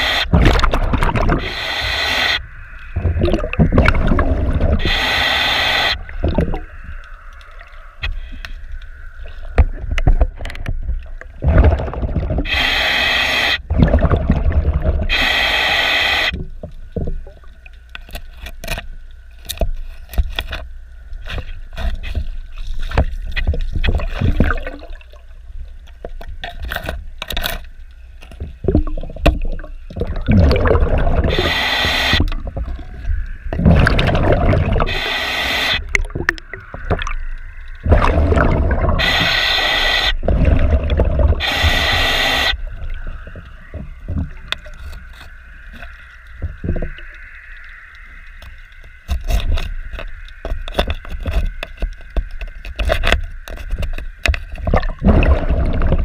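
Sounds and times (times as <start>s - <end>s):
underwater breath bubbling: 0.0s - 7.1s, 11.3s - 16.5s, 24.0s - 25.1s, 28.6s - 44.8s, 54.7s - 56.0s
low underwater rumble: 2.4s - 5.0s, 28.1s - 31.4s, 32.2s - 35.0s, 35.8s - 39.2s, 40.2s - 56.0s.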